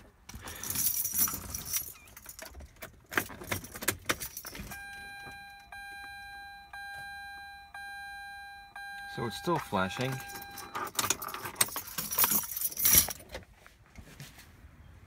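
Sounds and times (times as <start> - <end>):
car keys jangling: 0.0 - 5.8, 9.2 - 13.4
electronic warning chime: 4.7 - 10.9.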